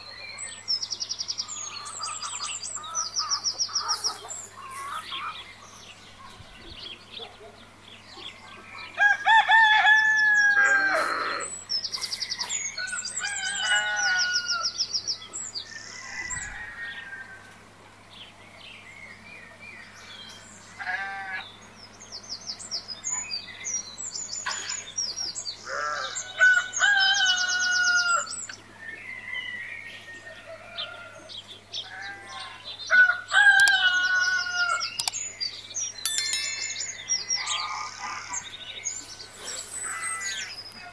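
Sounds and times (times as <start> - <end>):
small birds chirping: 33.5 - 40.9.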